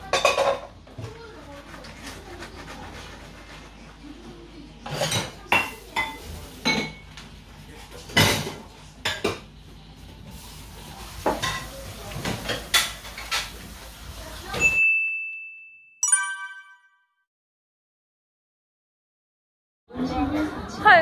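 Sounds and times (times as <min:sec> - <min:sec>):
dishes clinking and clattering: 0:00.0 - 0:02.5, 0:04.8 - 0:09.6, 0:11.1 - 0:13.8.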